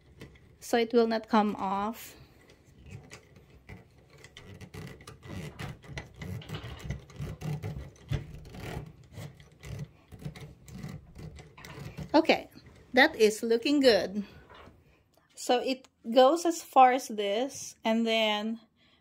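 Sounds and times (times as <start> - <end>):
metal threads scraping: 0.0 - 13.2.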